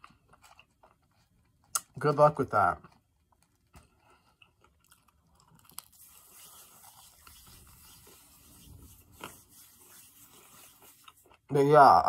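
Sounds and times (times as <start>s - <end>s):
chewing french fries: 0.0s - 8.2s, 10.2s - 11.6s.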